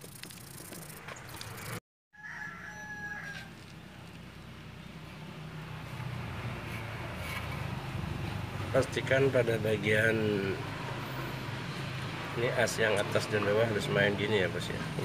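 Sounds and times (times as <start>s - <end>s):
rooster crowing: 2.1s - 3.6s.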